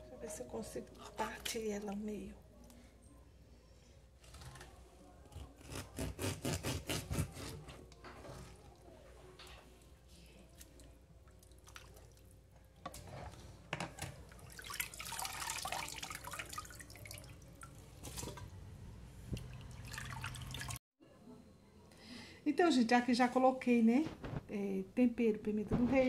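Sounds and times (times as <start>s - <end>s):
water splashing and dripping: 11.3s - 12.2s, 14.3s - 18.4s, 19.3s - 20.8s.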